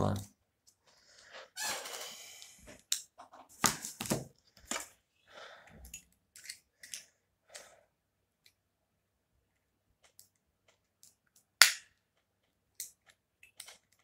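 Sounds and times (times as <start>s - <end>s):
hands handling a smartphone: 2.9s - 5.0s.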